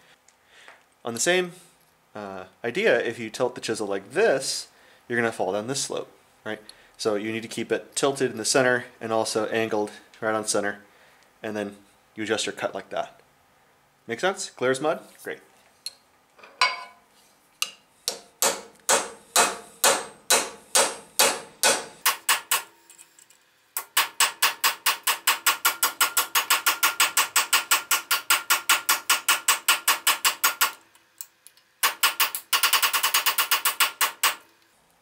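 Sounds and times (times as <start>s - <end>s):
hammer striking metal chisel: 17.6s - 22.7s, 23.8s - 30.8s.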